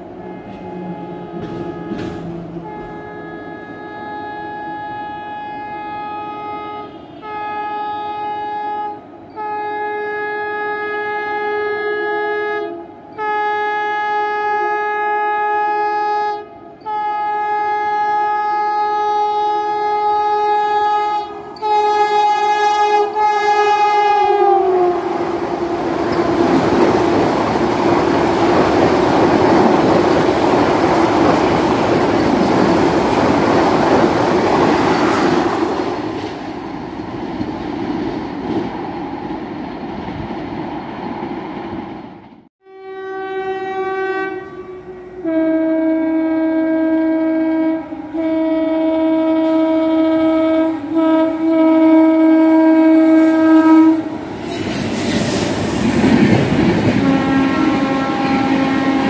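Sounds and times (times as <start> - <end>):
train rushing past: 0.0 - 5.8, 19.4 - 42.5, 49.7 - 59.0
train horn blasts: 0.0 - 27.4, 42.6 - 54.3, 56.7 - 59.0
wheels clattering on rails: 25.5 - 41.2, 54.4 - 59.0.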